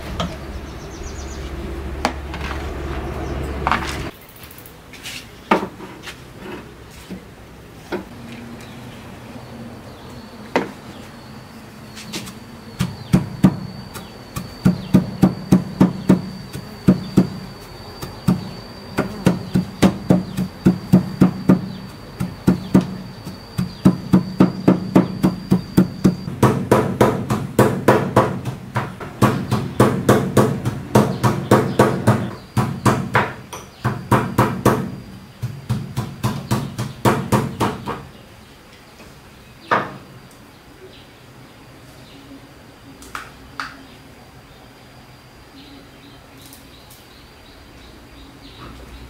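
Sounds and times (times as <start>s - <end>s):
pestle pounding in ceramic bowl: 18.0s - 33.3s.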